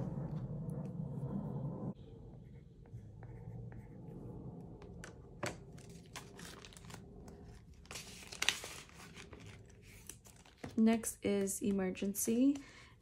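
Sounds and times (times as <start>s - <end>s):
paper banknotes rustling: 7.8s - 10.7s.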